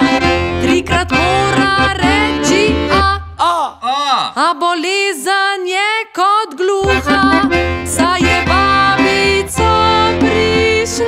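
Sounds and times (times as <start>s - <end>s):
accordion music: 0.0s - 3.4s, 6.8s - 11.0s.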